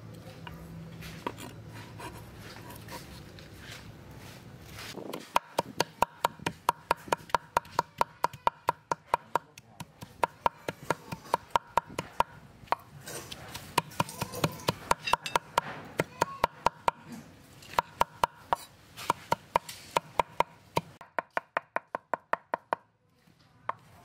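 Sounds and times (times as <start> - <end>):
cleaver chopping on wooden board: 5.1 - 17.0.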